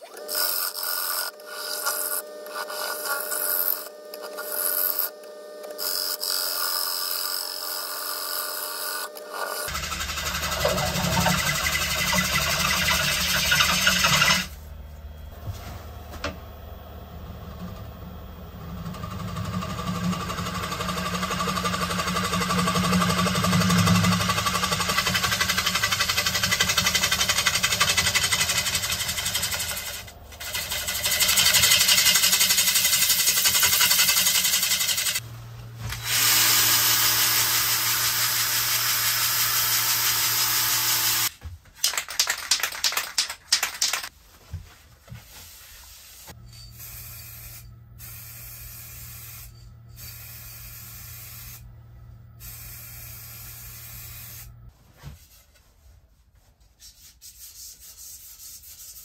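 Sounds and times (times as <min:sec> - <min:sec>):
lathe tool scraping wood: 0:00.0 - 0:14.6, 0:18.5 - 0:35.2
drill sanding pad humming: 0:00.3 - 0:14.6, 0:18.0 - 0:35.2, 0:35.9 - 0:41.3
low hum: 0:09.7 - 0:24.9, 0:46.4 - 0:54.7.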